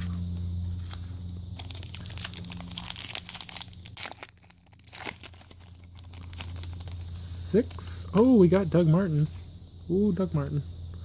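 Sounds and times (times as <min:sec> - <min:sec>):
foil wrapper crinkling and tearing: 0:00.8 - 0:08.2.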